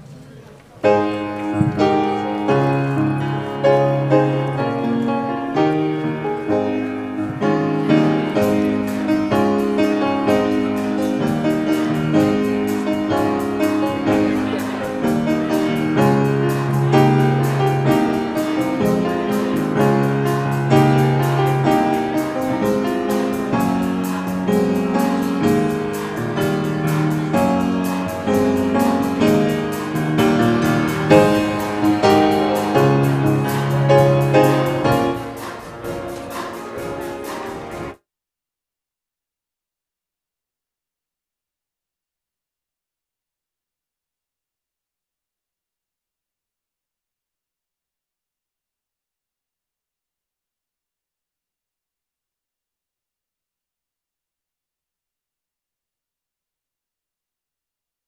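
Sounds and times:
slow keyboard chords: 0:00.0 - 0:38.0.

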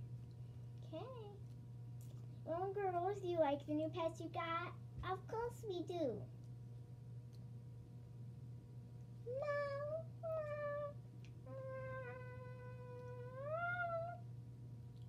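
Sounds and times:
child meowing like a cat: 0:09.3 - 0:14.2.

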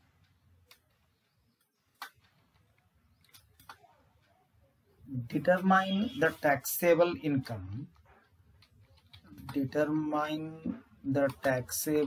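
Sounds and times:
keyboard keys clicking: 0:00.0 - 0:04.4.

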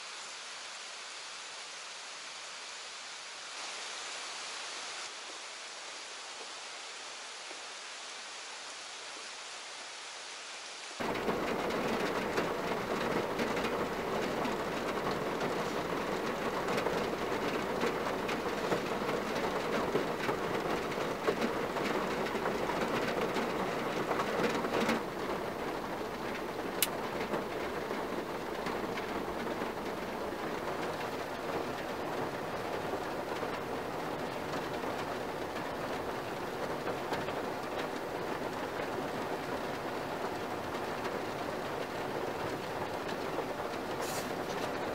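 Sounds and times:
rain on car roof and windows: 0:00.0 - 0:44.9.

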